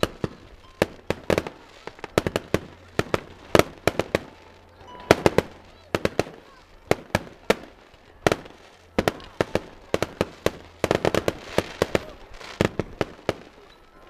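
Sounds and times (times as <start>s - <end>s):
fireworks bangs: 0.0s - 14.0s
hissing crackle: 0.0s - 14.0s.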